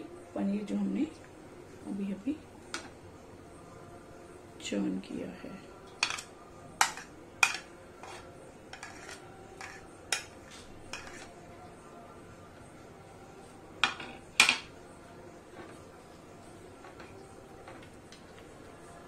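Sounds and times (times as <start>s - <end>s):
spoon clinking and tapping: 6.0s - 8.2s.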